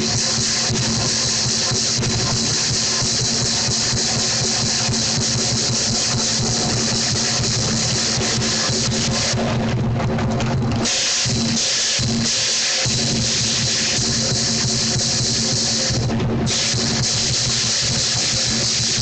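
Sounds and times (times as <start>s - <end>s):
crashing cymbals: 0.0s - 9.6s, 10.8s - 19.0s
large drum beating: 14.0s - 17.0s.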